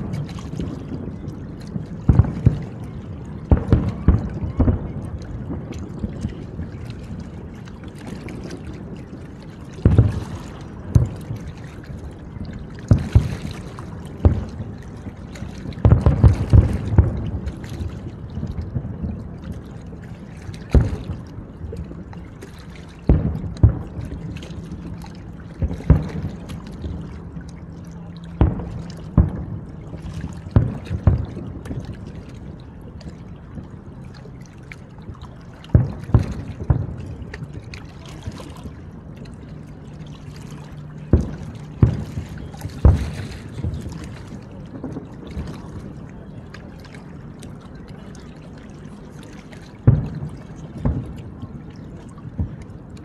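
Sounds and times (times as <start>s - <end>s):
fireworks booming: 2.0s - 2.8s, 3.4s - 6.0s, 9.8s - 11.4s, 12.9s - 13.4s, 15.7s - 17.6s, 28.4s - 31.8s, 41.1s - 44.1s, 49.9s - 51.2s.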